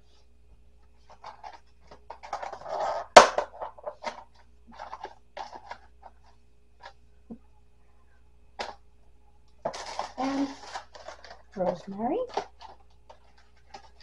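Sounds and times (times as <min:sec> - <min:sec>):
herbs rustling and crackling: 0:09.6 - 0:14.0.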